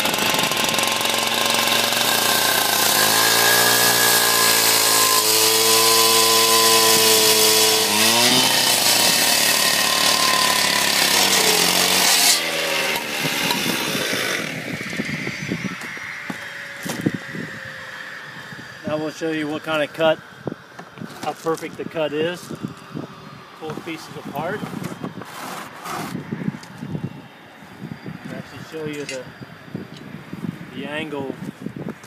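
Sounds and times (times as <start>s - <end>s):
concrete saw cutting masonry: 0.0s - 18.2s, 21.0s - 26.7s.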